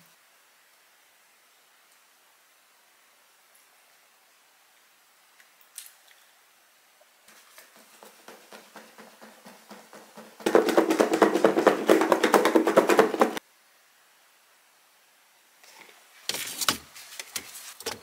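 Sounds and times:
plastic container shaken hard: 7.3s - 13.4s.

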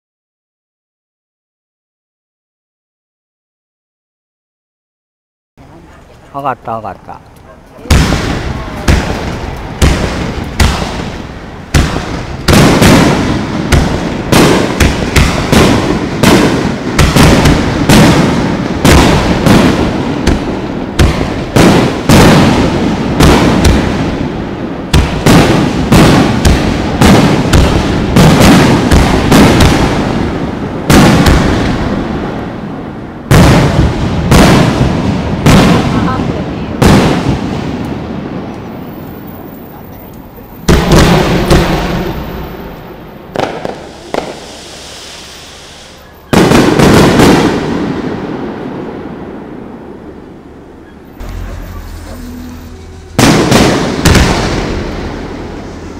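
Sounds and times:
firework shells bursting: 7.2s - 32.1s, 37.8s - 48.2s, 50.8s - 55.9s.

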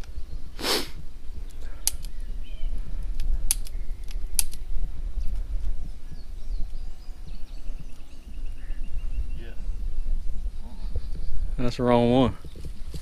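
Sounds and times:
low wind rumble: 0.0s - 13.0s
revolver metallic clicks: 3.0s - 4.6s.

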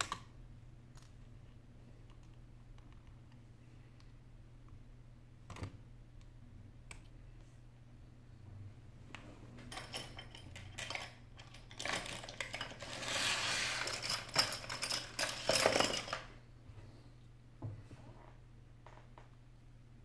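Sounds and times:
small metal objects clinking: 9.7s - 16.4s.

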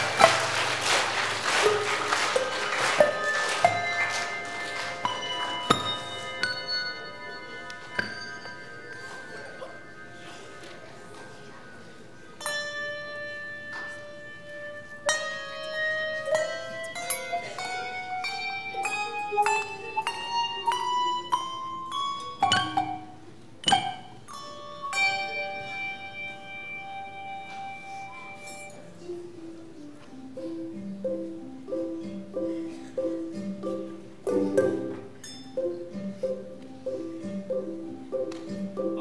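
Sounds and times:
handbell choir ringing: 1.7s - 10.6s, 24.3s - 28.9s, 35.2s - 35.6s.

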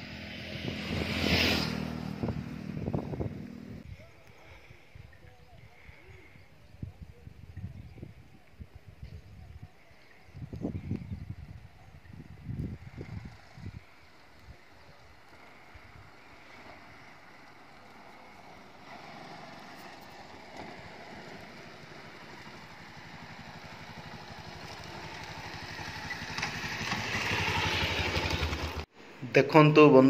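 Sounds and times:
motorcycle approaching: 0.0s - 4.8s, 10.2s - 28.9s.

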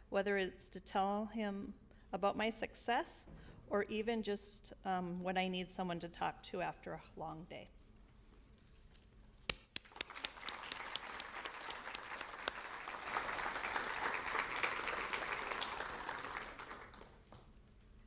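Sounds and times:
audience applauding: 9.8s - 17.4s.

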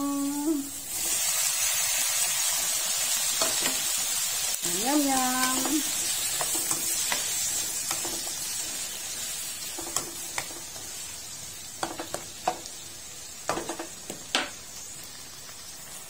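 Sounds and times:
vegetables sizzling in a wok: 0.0s - 16.0s
spatula scraping and tapping pan: 5.4s - 8.7s, 9.7s - 10.9s, 11.8s - 12.7s.

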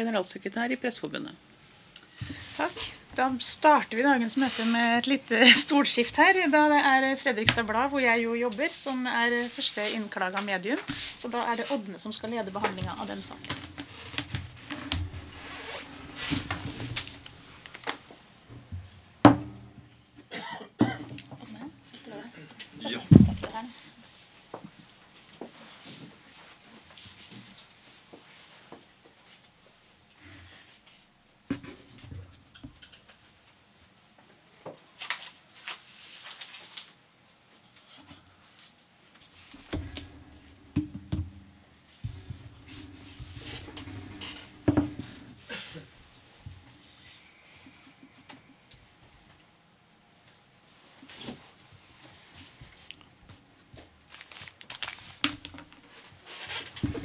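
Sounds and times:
people rustling at a table: 2.2s - 18.2s, 21.1s - 31.1s, 34.8s - 40.7s
low thumps: 23.0s - 23.6s, 39.7s - 45.4s.

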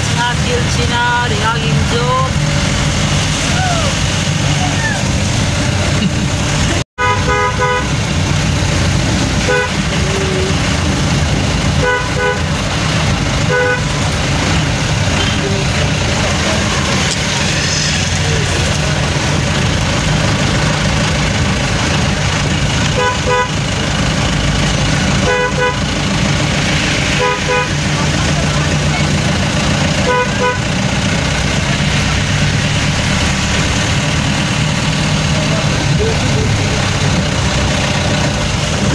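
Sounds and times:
tyres on wet road: 0.0s - 38.9s
vehicle engine: 0.0s - 38.9s
car horn honks: 7.0s - 8.1s, 9.4s - 10.6s, 11.8s - 12.7s, 13.4s - 14.1s, 22.9s - 23.7s, 25.2s - 26.0s, 27.1s - 28.1s, 30.0s - 30.9s.

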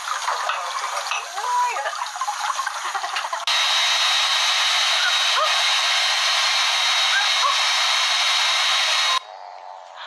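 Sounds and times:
hair dryer running: 3.4s - 9.2s.

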